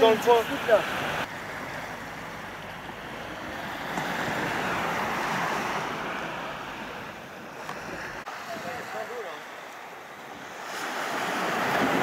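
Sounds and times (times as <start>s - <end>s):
sea wave washing up beach: 3.0s - 12.0s.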